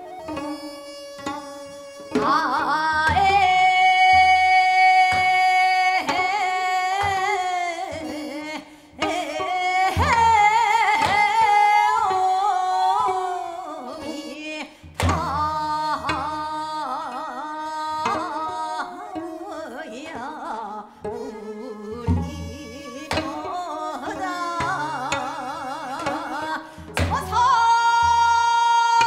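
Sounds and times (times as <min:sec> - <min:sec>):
woman singing folk song: 0:02.1 - 0:29.0.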